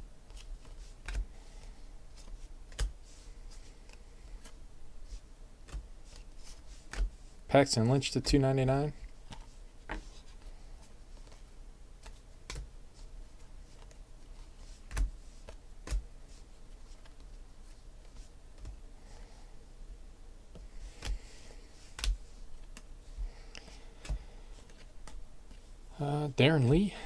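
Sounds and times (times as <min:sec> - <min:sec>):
cards clicking and snapping: 0:02.7 - 0:02.9.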